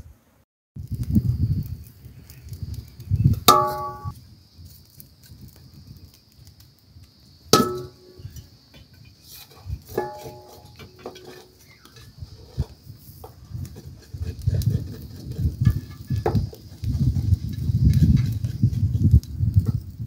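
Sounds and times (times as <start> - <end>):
wood fire crackling: 0.8 - 20.0
metal utensils clanging: 7.6 - 8.2, 9.9 - 12.1
knife scraping: 9.2 - 12.7.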